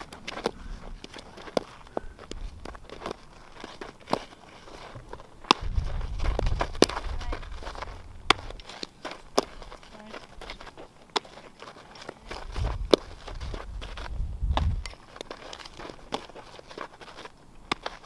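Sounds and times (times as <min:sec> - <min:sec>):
footsteps scuffing on dirt: 0:00.0 - 0:18.0
low rumble: 0:05.7 - 0:08.6
softball bat cracks: 0:08.2 - 0:09.6, 0:17.6 - 0:18.0.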